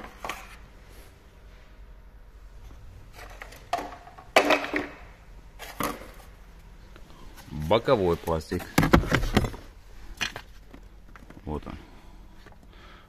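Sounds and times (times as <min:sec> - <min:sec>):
low steady hum: 0:00.0 - 0:13.0
handling knocks and rustles: 0:07.3 - 0:11.7.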